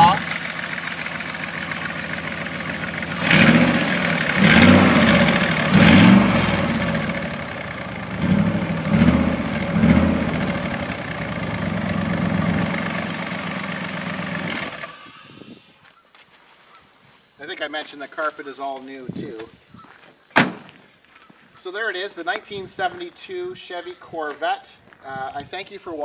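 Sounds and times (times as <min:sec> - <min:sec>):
car engine idling and revving: 0:00.0 - 0:15.2.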